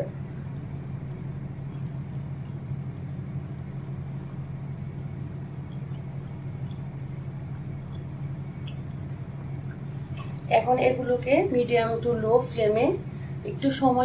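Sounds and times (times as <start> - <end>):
food frying in hot oil: 0.0 - 14.0
oil popping: 5.4 - 12.5.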